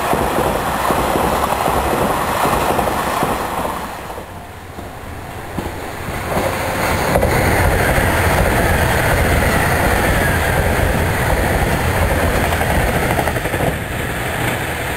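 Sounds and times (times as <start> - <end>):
train rumbling past: 0.0 - 14.9
faint high whine: 3.8 - 11.9.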